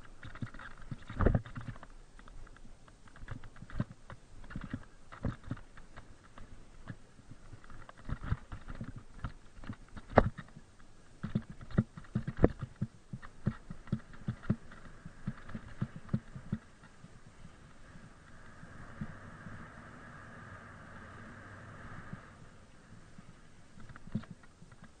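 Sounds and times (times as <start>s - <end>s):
bike knocking and rattling: 0.0s - 18.4s, 23.7s - 25.0s
faint steady hiss: 0.0s - 25.0s.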